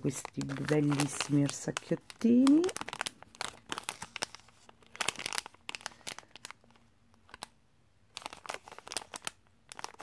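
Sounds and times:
plastic packet crinkling: 0:00.0 - 0:10.0.

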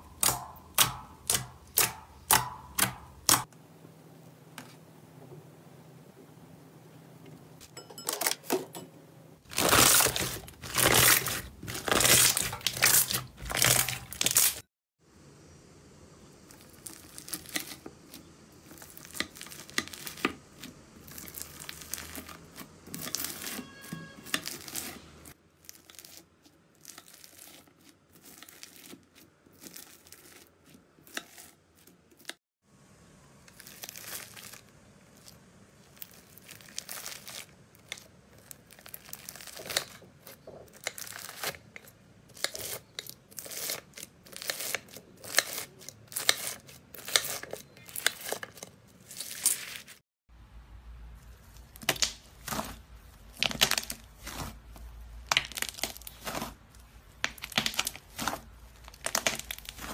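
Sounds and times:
knife cutting crunchy slime: 0:09.5 - 0:14.6, 0:25.7 - 0:32.4, 0:36.0 - 0:50.0, 0:51.6 - 0:59.9.

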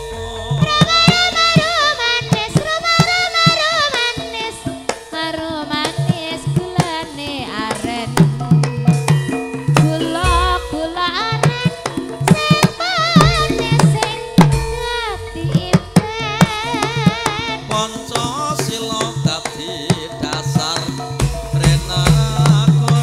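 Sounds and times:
high vibrato melody: 0:00.0 - 0:04.6, 0:08.3 - 0:17.9
hand drum strokes: 0:00.0 - 0:23.0
ringing metallophone notes: 0:00.0 - 0:23.0.

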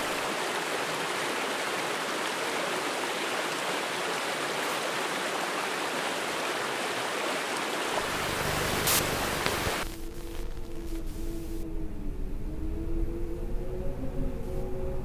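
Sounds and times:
stream running over stones: 0:00.0 - 0:10.6
low rumble: 0:08.0 - 0:15.0.

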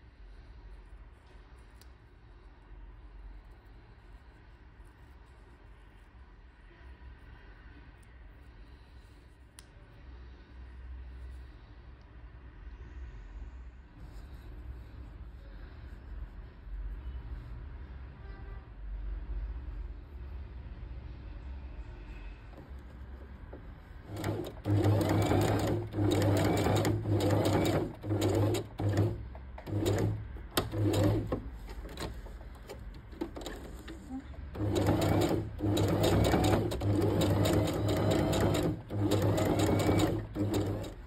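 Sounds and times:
electric sewing machine stitching: 0:24.1 - 0:41.0.

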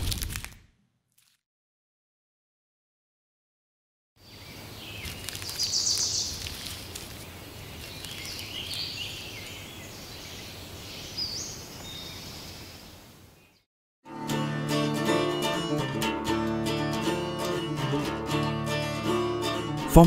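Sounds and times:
birds chirping and whistling: 0:04.3 - 0:06.4, 0:07.9 - 0:12.7.

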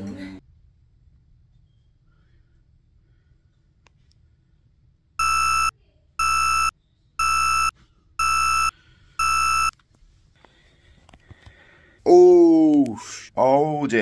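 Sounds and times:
alarm beeping: 0:05.2 - 0:09.7.

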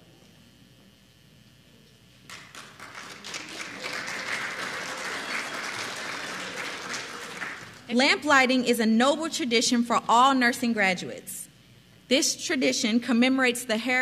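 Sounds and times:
audience applauding: 0:02.3 - 0:07.9.

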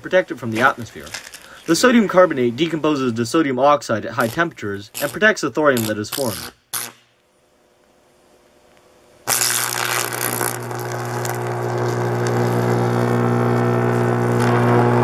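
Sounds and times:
arc crackling and sizzling: 0:00.3 - 0:02.7, 0:04.2 - 0:07.2, 0:08.7 - 0:15.0
electric arc striking: 0:04.2 - 0:07.2, 0:09.2 - 0:15.0
deep electric buzz: 0:07.6 - 0:15.0.

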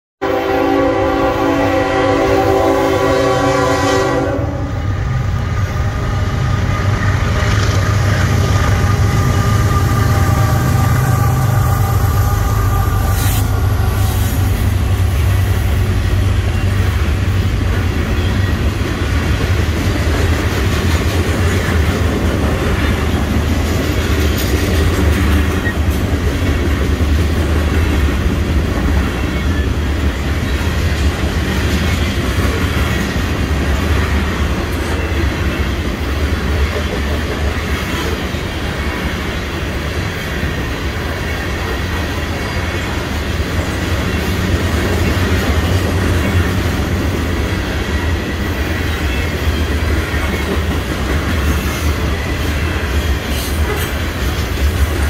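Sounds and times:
train horn sounding: 0:00.2 - 0:17.4
train rolling past rumbling: 0:00.2 - 0:55.0.

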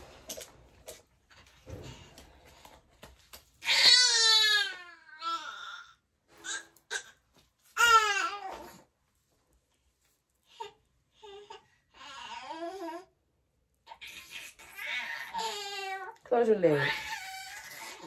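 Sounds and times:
baby crying: 0:03.6 - 0:07.2, 0:07.8 - 0:08.8, 0:10.6 - 0:13.1, 0:14.0 - 0:16.2
baby whimpering: 0:07.8 - 0:08.8, 0:10.5 - 0:13.1, 0:13.9 - 0:16.2, 0:16.8 - 0:18.0.

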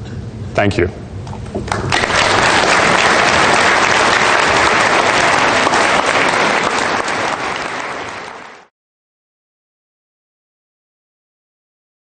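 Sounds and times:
audience applauding: 0:01.7 - 0:08.7.

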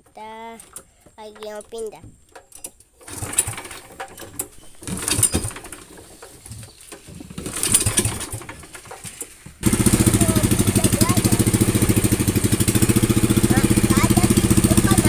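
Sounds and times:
boat engine pull-start cranking: 0:00.0 - 0:15.0.

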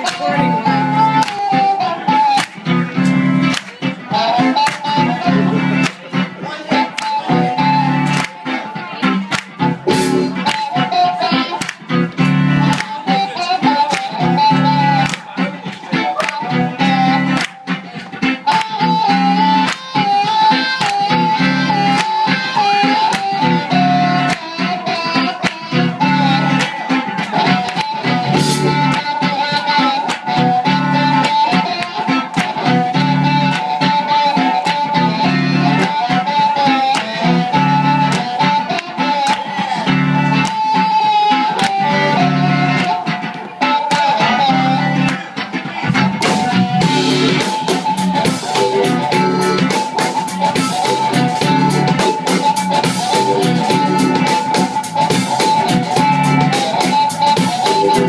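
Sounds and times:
electric guitar: 0:00.0 - 0:58.0
harmonica bending notes: 0:00.0 - 0:58.0
throbbing bass: 0:05.0 - 0:06.5, 0:09.5 - 0:10.5, 0:11.9 - 0:12.8, 0:28.0 - 0:29.2, 0:45.8 - 0:58.0
steady drum beat: 0:27.3 - 0:29.5, 0:45.8 - 0:58.0.

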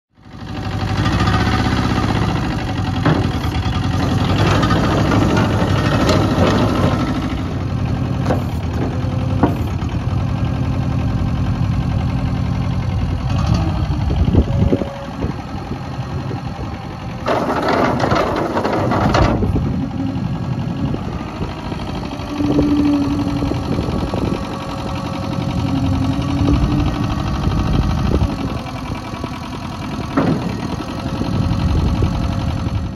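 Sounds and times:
truck engine running: 0:00.2 - 0:32.9
rattling clatter: 0:02.8 - 0:07.5, 0:17.2 - 0:19.7, 0:22.4 - 0:32.8.

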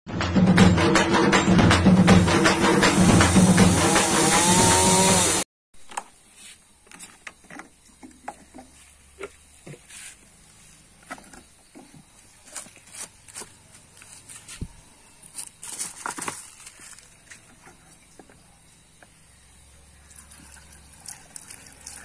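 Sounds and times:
intro music: 0:00.1 - 0:05.4.

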